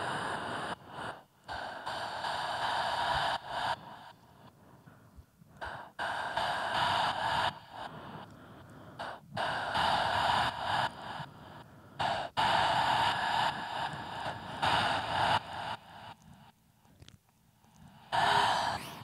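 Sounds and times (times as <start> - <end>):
breathy exhalations into microphone: 18.2 - 19.0.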